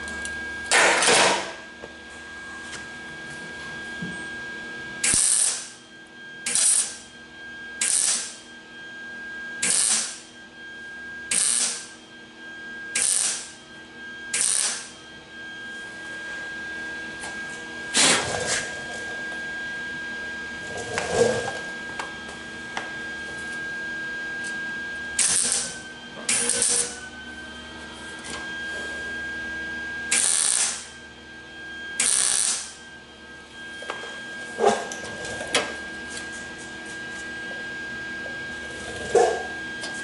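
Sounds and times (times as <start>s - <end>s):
welding arc crackle: 5.0s - 5.8s, 6.5s - 7.0s, 7.8s - 8.4s, 9.6s - 10.2s, 11.3s - 11.9s, 13.0s - 13.5s, 14.3s - 14.9s, 25.2s - 26.9s, 30.1s - 31.0s, 32.0s - 32.8s.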